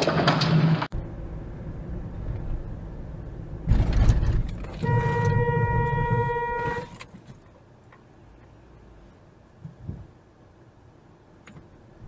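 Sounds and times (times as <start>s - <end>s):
road and engine rumble: 0.0s - 12.0s
car horn: 4.7s - 7.0s.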